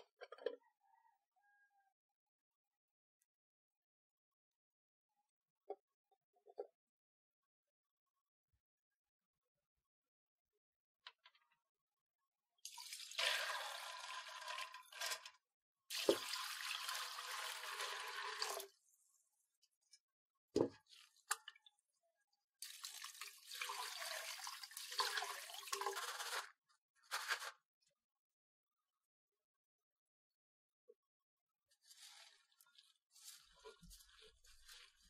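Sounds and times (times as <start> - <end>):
water running through a metal strainer: 12.7 - 15.3, 15.9 - 18.7, 22.6 - 26.5, 31.8 - 35.0.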